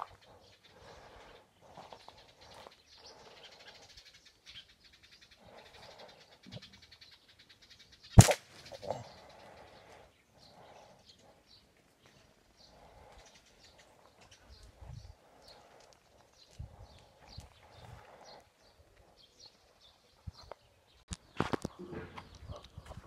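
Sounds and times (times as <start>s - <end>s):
small birds chirping: 0.0s - 23.0s
slingshot shot crack: 8.2s - 8.8s.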